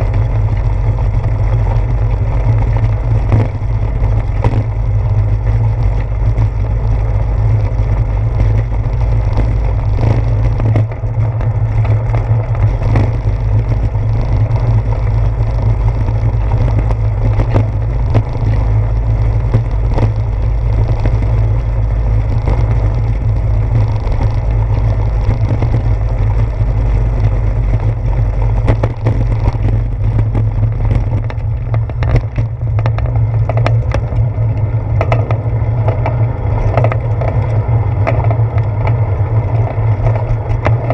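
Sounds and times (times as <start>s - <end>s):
bicycle rolling over brick street: 0.0s - 40.9s.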